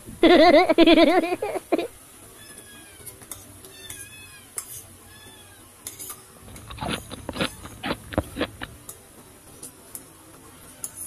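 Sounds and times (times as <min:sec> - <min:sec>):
faint cat meow: 0:02.4 - 0:05.8
person slurping soup: 0:06.5 - 0:08.8.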